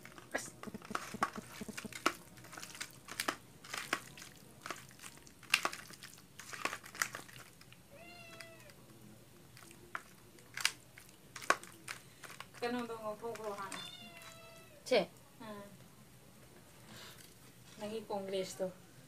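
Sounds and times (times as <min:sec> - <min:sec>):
hands squishing raw chicken: 0:00.6 - 0:08.8, 0:09.5 - 0:12.6
cat meowing: 0:07.9 - 0:08.8, 0:13.7 - 0:14.8.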